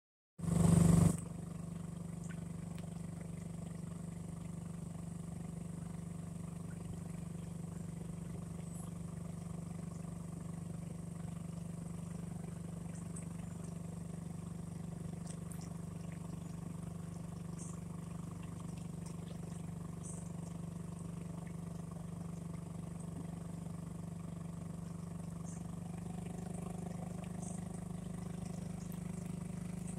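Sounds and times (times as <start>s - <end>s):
boat motor running: 0.4s - 29.9s.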